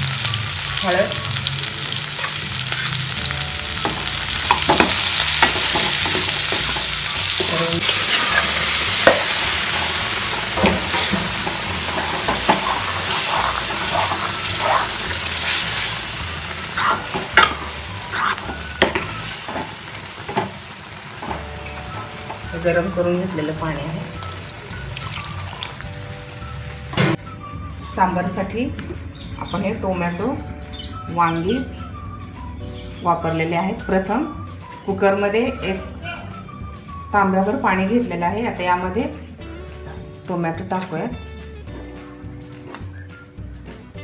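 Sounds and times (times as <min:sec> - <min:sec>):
food sizzling in pan: 0:00.0 - 0:27.0
ladle scraping and knocking pan: 0:04.5 - 0:15.1.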